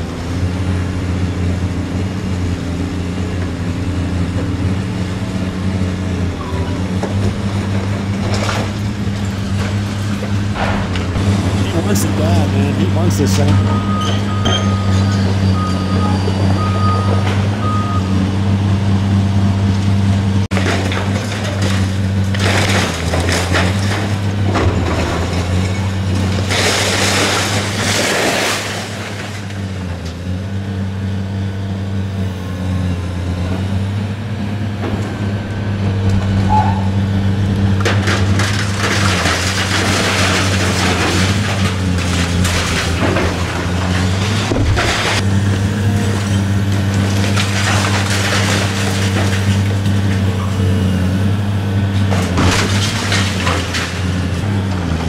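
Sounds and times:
excavator diesel engine running: 0:00.0 - 0:55.0
concrete and debris crashing: 0:20.5 - 0:30.1, 0:37.8 - 0:45.3, 0:46.0 - 0:50.5, 0:52.0 - 0:55.0.

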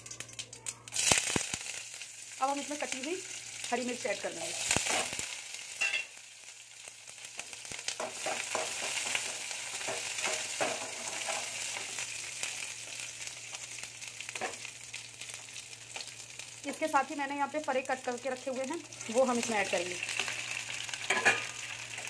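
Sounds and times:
chillies sizzling in hot oil: 0:00.0 - 0:22.0
metal spoon scraping a pan: 0:08.0 - 0:11.9, 0:20.1 - 0:22.0.

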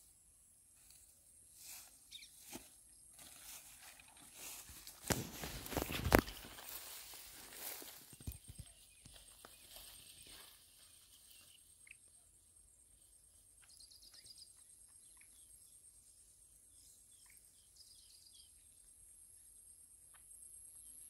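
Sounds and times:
bird chirps and trills: 0:02.1 - 0:02.4, 0:13.6 - 0:18.7.

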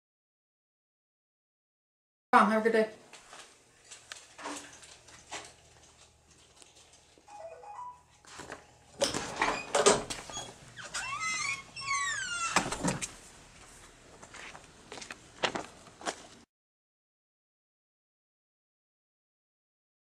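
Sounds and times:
door squeaking: 0:09.0 - 0:13.1.

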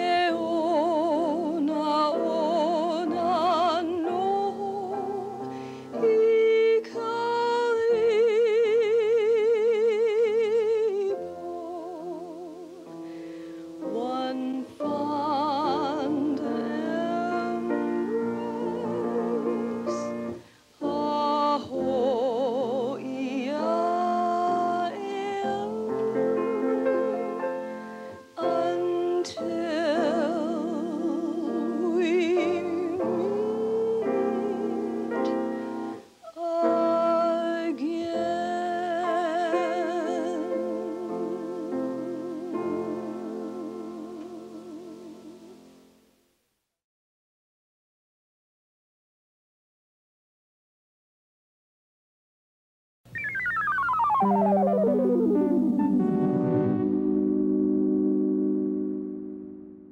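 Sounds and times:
piano accompaniment: 0:00.0 - 0:46.1, 0:53.1 - 0:59.9
person singing operatically: 0:13.8 - 0:20.2, 0:20.8 - 0:27.1, 0:28.4 - 0:35.3, 0:36.2 - 0:45.6.

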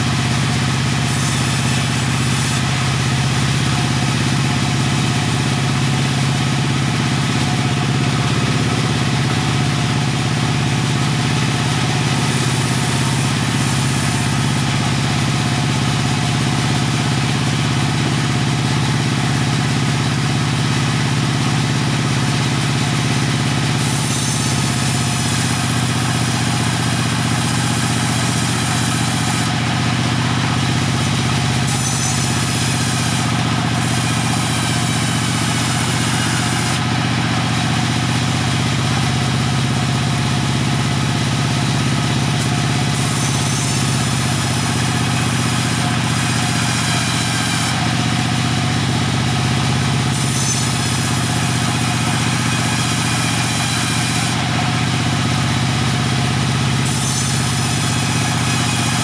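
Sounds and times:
engine running steadily: 0:00.0 - 0:59.0.

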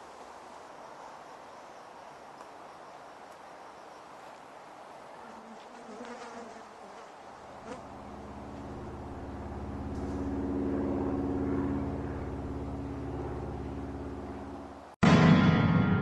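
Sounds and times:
low buzzing drone: 0:07.4 - 0:16.0.

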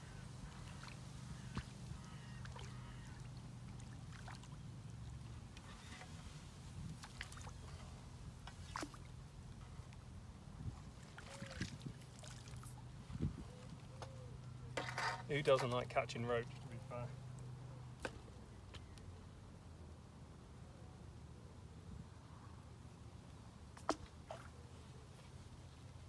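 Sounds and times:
low steady hum: 0:00.0 - 0:26.0
landing net dipping into water: 0:00.5 - 0:04.6, 0:06.7 - 0:07.8, 0:08.4 - 0:09.2, 0:11.0 - 0:12.9, 0:23.8 - 0:24.6.

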